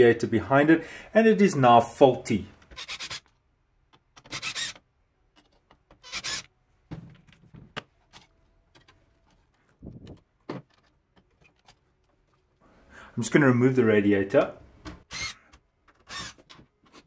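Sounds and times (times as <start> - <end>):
screwdriver turning screws: 2.6 - 6.5, 15.1 - 17.0.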